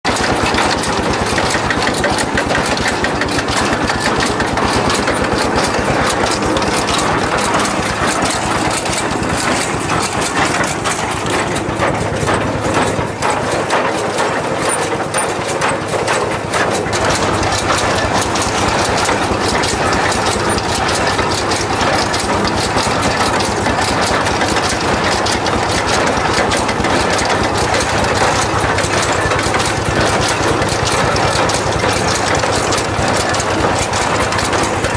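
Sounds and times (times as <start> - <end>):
tractor diesel engine running: 0.0 - 34.9
hay loader clattering: 0.1 - 34.9.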